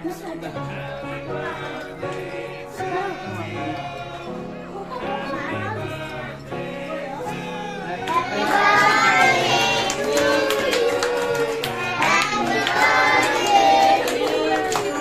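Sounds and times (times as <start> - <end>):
hands clapping: 8.0 - 15.0
child singing: 8.1 - 14.6.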